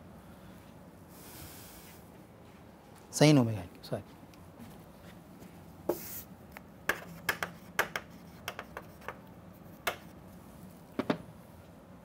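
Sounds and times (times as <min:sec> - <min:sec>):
chalk hissing scrape: 0:05.9 - 0:06.3
chalk tapping and scratching: 0:05.9 - 0:06.3, 0:06.9 - 0:10.2.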